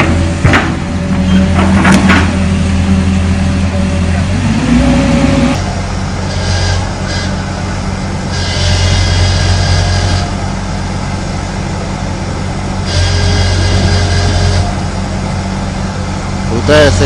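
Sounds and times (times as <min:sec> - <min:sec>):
excavator diesel engine under load: 0:00.0 - 0:17.0.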